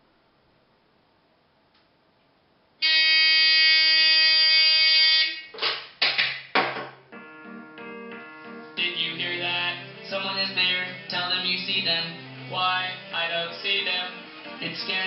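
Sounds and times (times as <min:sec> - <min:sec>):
faint music: 0:07.0 - 0:15.0.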